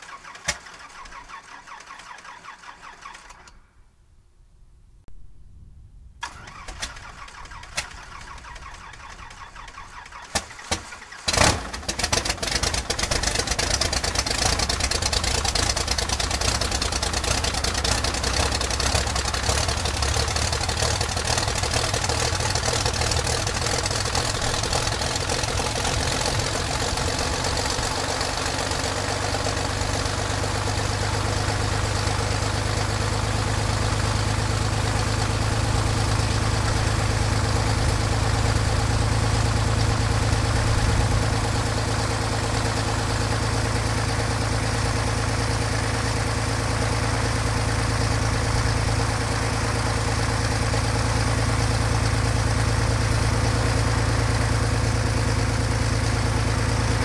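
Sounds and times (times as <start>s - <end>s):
engine starter cranking: 0.0s - 3.6s, 6.2s - 29.8s
aircraft engine running: 6.2s - 57.0s
engine pops: 6.3s - 29.9s.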